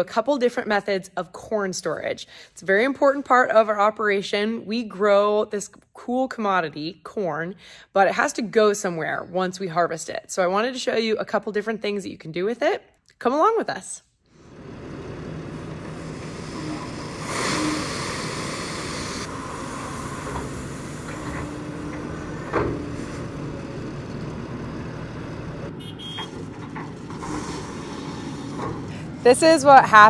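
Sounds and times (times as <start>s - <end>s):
grain pouring hiss: 14.4s - 22.3s
excavator diesel engine running: 14.4s - 30.0s.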